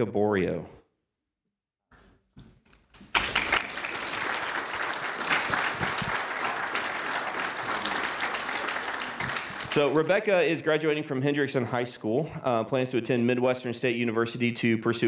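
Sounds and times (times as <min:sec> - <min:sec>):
congregation applauding: 0:02.9 - 0:10.3.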